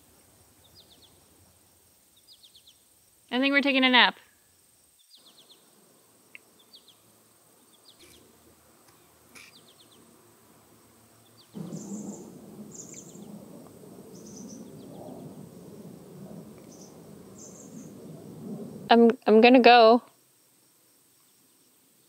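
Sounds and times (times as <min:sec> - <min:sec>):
small birds chirping: 0:00.0 - 0:04.1, 0:04.8 - 0:18.9
rushing background noise: 0:05.6 - 0:19.0.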